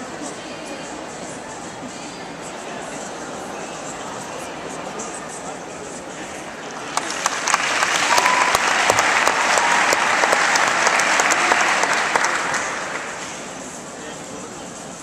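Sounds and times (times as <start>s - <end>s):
audience applauding: 6.7s - 13.6s.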